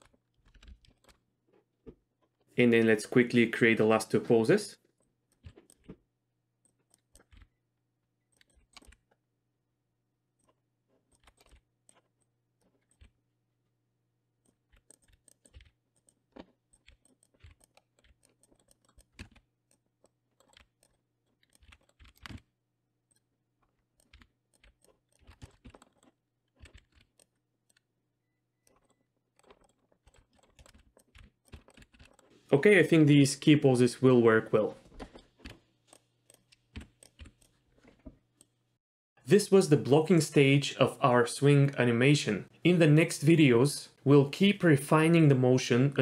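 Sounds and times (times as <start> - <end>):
keyboard keystrokes: 14.5 - 22.5, 24.0 - 27.8.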